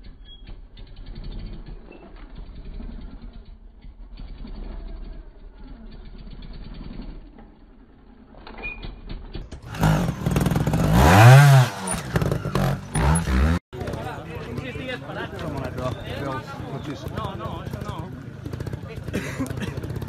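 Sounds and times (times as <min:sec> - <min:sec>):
motorcycle engine revving: 0:00.7 - 0:08.3, 0:09.0 - 0:14.7, 0:17.1 - 0:20.0.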